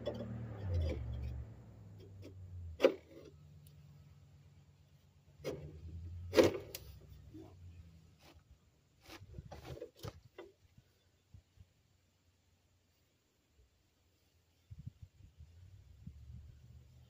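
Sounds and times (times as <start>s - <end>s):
knocks clunks and scrapes: 0.0s - 3.5s, 5.3s - 10.9s.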